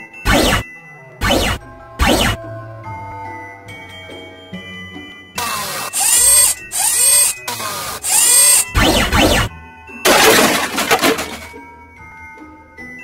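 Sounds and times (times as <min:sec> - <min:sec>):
light background music: 0:00.0 - 0:13.0
noisy sound effect bursts: 0:00.2 - 0:00.6, 0:01.2 - 0:02.4, 0:05.4 - 0:09.5.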